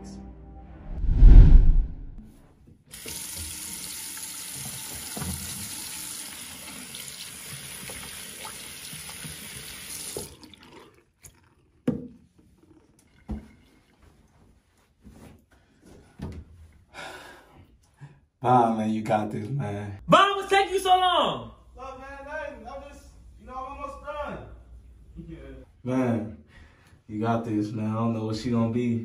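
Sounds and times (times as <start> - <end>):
tap running into sink: 4.5 - 5.9.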